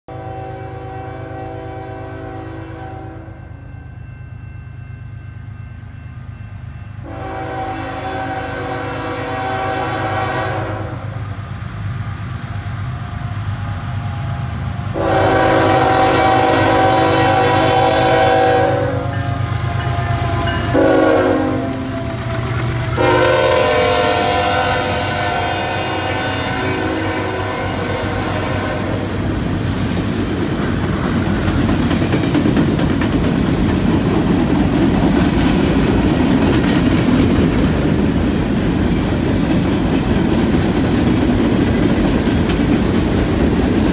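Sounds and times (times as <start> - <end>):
train horn blasts: 0.1 - 3.8, 7.0 - 11.3, 14.9 - 29.4
locomotive rumble: 0.1 - 43.9.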